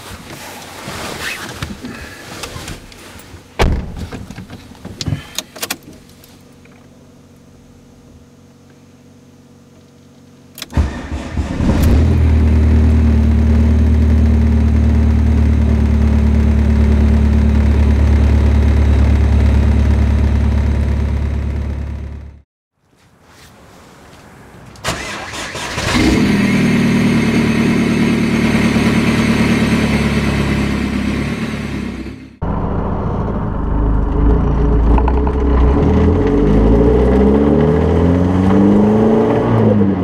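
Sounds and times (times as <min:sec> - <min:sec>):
knocks and rustles in car: 0:01.4 - 0:06.1
car engine starting and idling: 0:10.5 - 0:22.4, 0:24.7 - 0:40.0.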